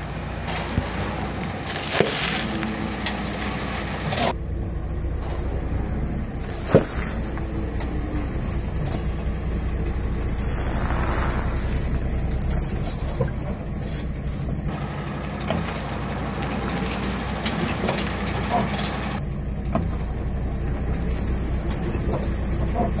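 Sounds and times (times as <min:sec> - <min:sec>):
tyre creeping over objects: 0:00.0 - 0:14.7, 0:16.7 - 0:23.0
truck engine idling: 0:00.0 - 0:23.0
brief hiss: 0:10.3 - 0:12.7.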